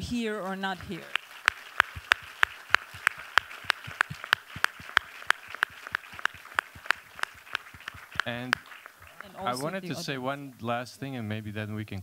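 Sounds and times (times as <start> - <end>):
nearby hands clapping loudly: 0.0 - 10.0
audience applauding: 0.0 - 10.4.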